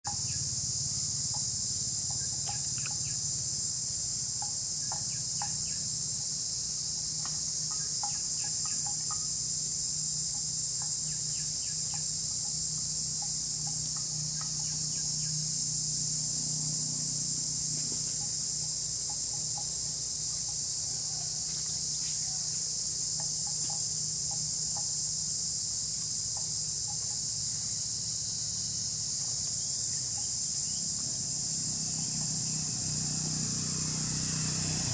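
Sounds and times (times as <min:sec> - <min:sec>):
high-pitched insect chorus: 0:00.0 - 0:34.9
bird chirps: 0:02.1 - 0:03.2.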